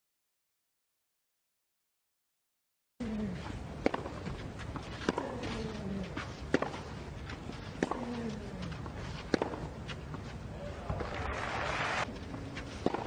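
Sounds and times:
racket striking ball: 3.8 - 5.8, 6.5 - 6.9, 7.8 - 8.3, 9.2 - 9.8, 12.8 - 13.0.

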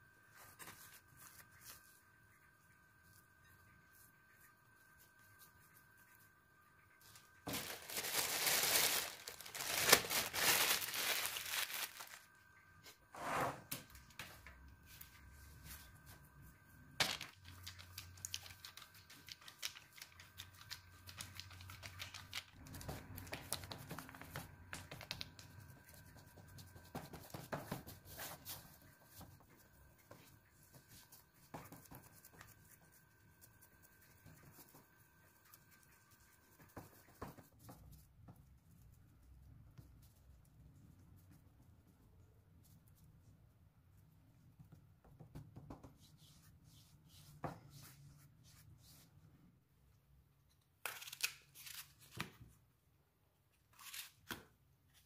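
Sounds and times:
crinkling and tearing: 7.5 - 12.2.

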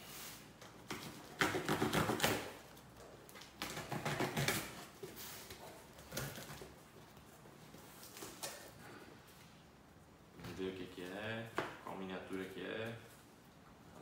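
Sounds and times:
cardboard and tape ripping: 0.8 - 5.4.

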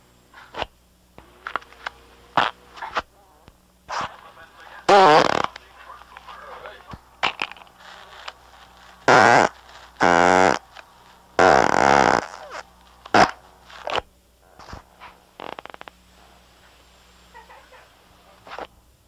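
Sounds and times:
fart sounds: 2.4 - 3.0, 4.9 - 5.6, 7.2 - 7.7, 9.0 - 10.7, 11.4 - 14.8, 15.4 - 15.9.

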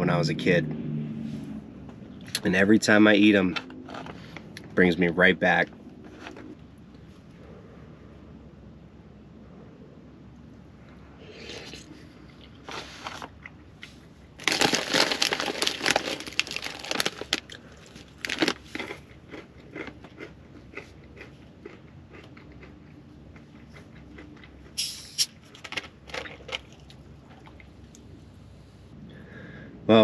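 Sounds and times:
crunching snack mix: 11.4 - 27.0
plastic snack bag crinkling: 14.4 - 20.3.

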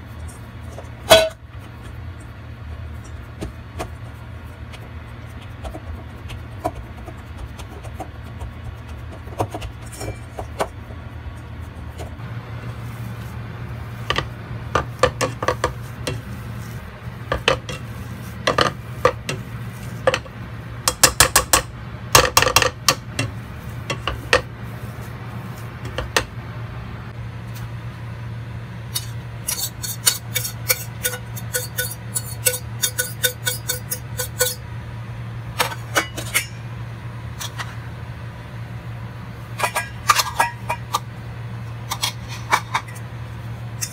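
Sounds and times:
low steady hum: 0.0 - 43.9
masher clinking against metal pot: 29.5 - 34.6.

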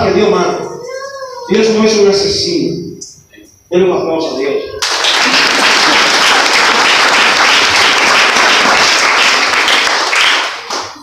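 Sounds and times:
congregation applauding: 4.8 - 11.0.

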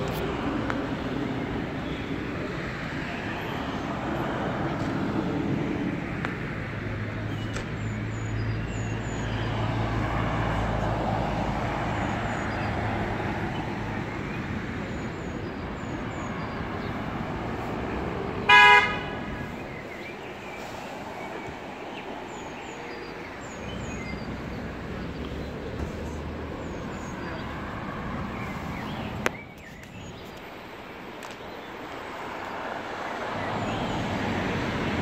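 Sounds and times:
cars passing: 0.0 - 35.0
vehicle horn toot: 18.5 - 19.3.

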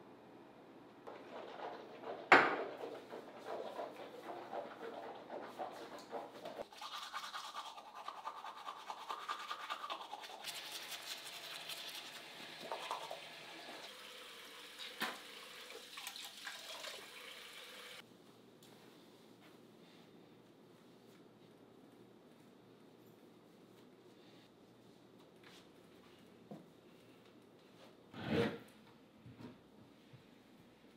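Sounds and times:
toothbrush scrubbing teeth: 1.1 - 13.2.

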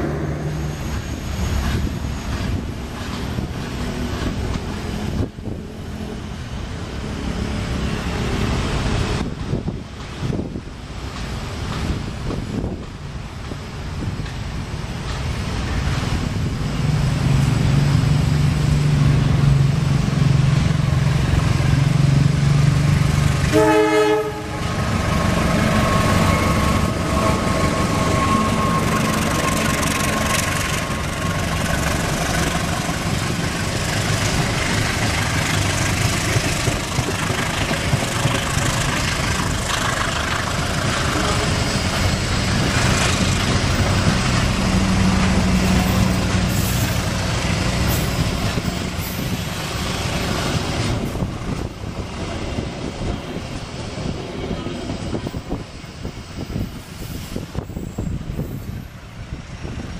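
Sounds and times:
locomotive engine drone: 0.0 - 59.9
train wheels rolling: 0.0 - 59.9
wheels clicking over rail joints: 24.7 - 54.2.

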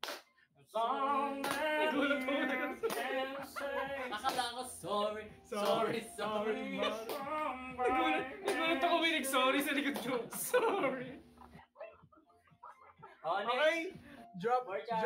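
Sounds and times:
man singing a cappella: 0.7 - 10.4.

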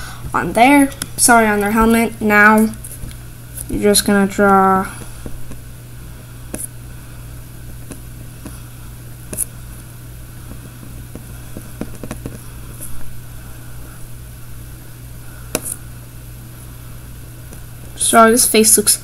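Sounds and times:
steady low hum: 0.0 - 19.0
pen tapping on paper: 11.1 - 12.4.

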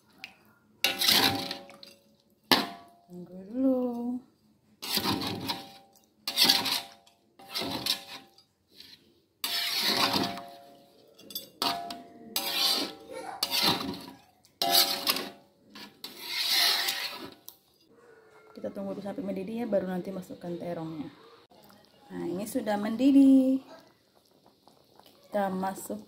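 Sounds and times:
spatula scraping in a wok: 0.8 - 2.0, 4.8 - 17.9.

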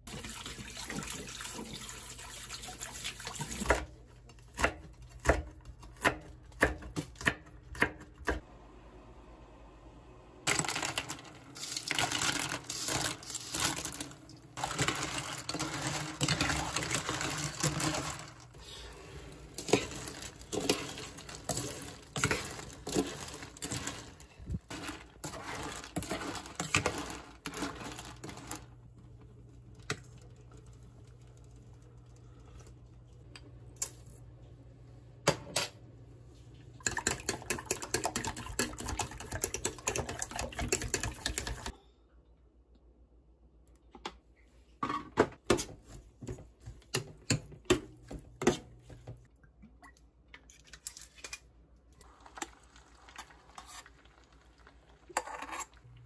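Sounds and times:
eggs whisked in metal bowl: 0.0 - 4.3, 11.6 - 28.7, 36.8 - 41.8, 52.0 - 55.9
utensils clicking and tapping: 36.8 - 41.7
spoon scraping in steel pot: 55.2 - 55.8.

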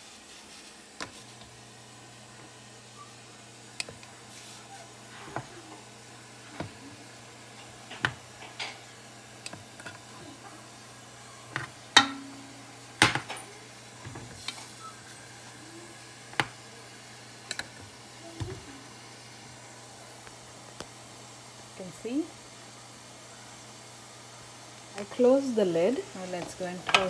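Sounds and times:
low steady hum: 1.0 - 27.0.

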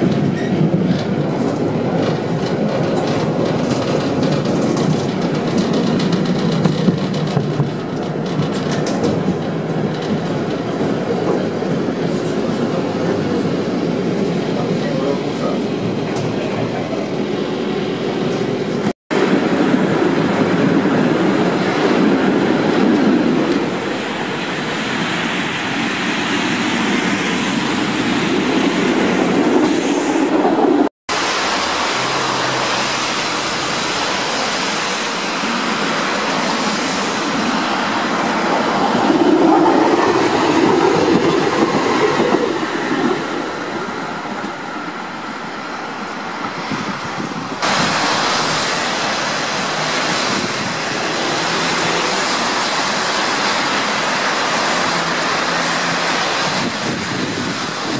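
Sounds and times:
clatter over rail joints: 0.0 - 13.5
tram wheels rumbling on rails: 0.0 - 57.9.

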